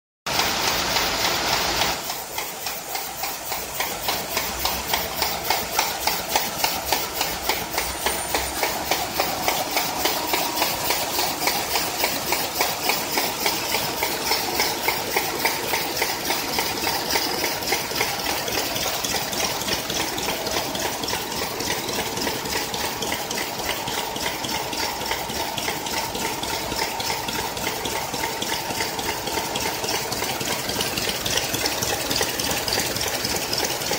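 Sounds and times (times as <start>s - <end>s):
loud hiss: 0.3s - 17.4s
machine clattering rhythmically: 0.3s - 33.9s.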